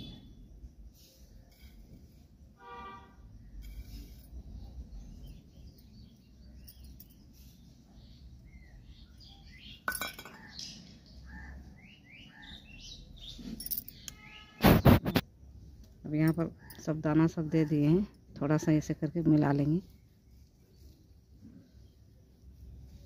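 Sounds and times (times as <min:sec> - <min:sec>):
small birds chirping: 0:03.4 - 0:16.9.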